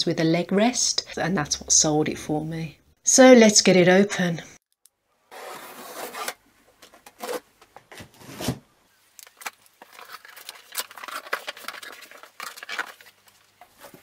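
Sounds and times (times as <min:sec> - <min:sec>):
cardboard scraping and rustling: 0:05.3 - 0:08.7, 0:09.4 - 0:14.0.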